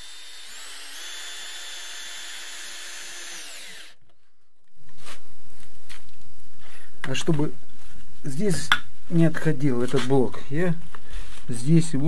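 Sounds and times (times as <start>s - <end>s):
cordless drill boring into concrete: 0.0s - 4.0s.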